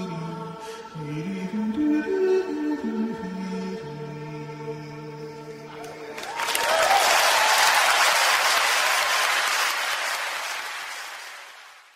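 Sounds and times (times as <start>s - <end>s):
audience applauding: 6.1s - 11.9s.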